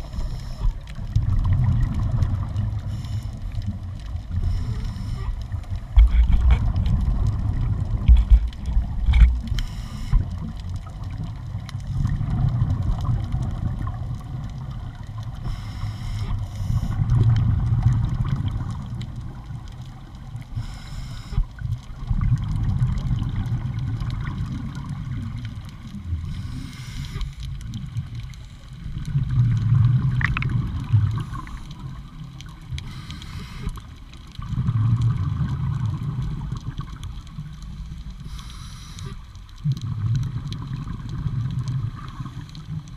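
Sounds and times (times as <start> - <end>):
regulator inhale hiss: 0.0 - 0.8, 2.8 - 3.5, 4.3 - 5.4, 9.5 - 10.4, 15.4 - 17.0, 20.5 - 21.6, 26.2 - 27.5, 31.2 - 31.9, 32.8 - 34.0, 38.2 - 39.4
gurgle of exhaled bubbles: 0.0 - 15.4, 16.3 - 20.3, 21.5 - 38.3, 39.5 - 42.9.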